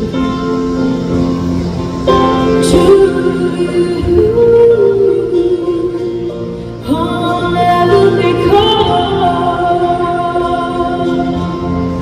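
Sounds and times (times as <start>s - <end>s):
keyboard: 0.0s - 12.0s
woman singing: 2.6s - 12.0s.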